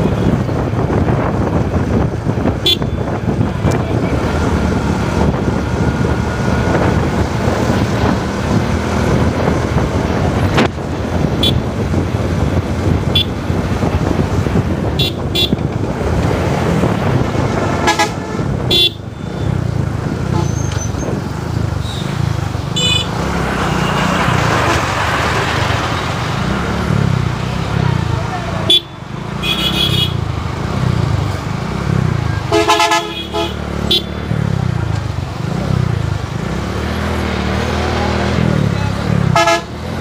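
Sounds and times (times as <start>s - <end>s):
motorcycle engine rumble: 0.0s - 40.0s
vehicle horn toots: 2.6s - 3.1s, 11.4s - 11.6s, 15.0s - 15.6s, 17.8s - 19.5s, 22.8s - 23.1s, 28.7s - 30.2s, 32.5s - 34.2s, 39.3s - 39.7s.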